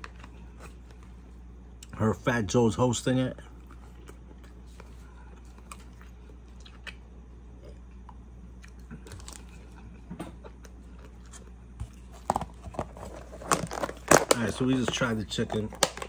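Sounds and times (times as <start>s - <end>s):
person chewing: 3.5s - 14.3s
plastic container crinkling: 12.2s - 16.0s.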